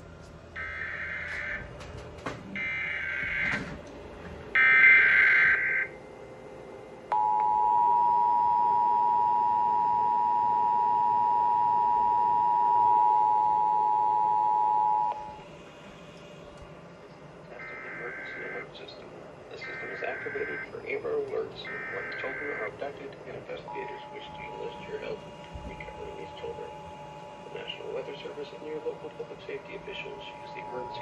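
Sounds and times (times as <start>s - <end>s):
screeching data bursts: 0.6s - 1.8s, 4.6s - 6.0s, 13.7s - 31.0s
two-tone attention signal: 7.1s - 15.4s, 19.6s - 20.8s, 21.6s - 22.8s, 23.6s - 31.0s.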